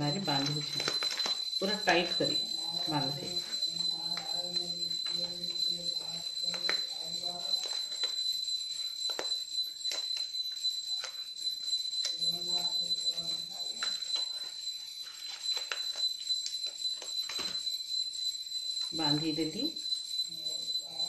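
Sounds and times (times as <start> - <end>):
glass bangles clinking: 0.0 - 12.2.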